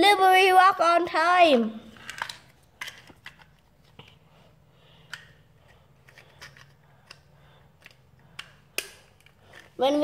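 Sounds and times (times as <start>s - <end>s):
plastic toy clicks and taps: 7.8s - 9.7s.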